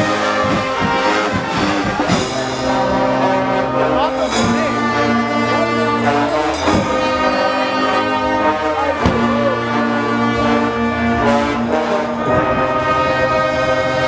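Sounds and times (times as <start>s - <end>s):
brass band playing chords: 0.0s - 14.0s
drum kit and bass drum hits: 9.0s - 9.5s.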